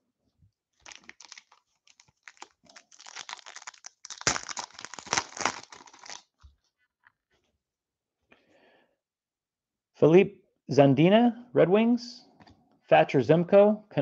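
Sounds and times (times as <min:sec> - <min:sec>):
foil wrapper crinkling and tearing: 0:00.8 - 0:06.4.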